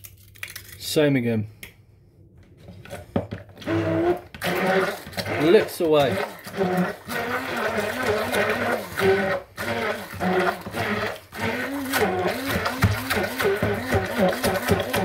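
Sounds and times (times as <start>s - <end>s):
electric hand mixer beating dough: 3.6s - 15.0s.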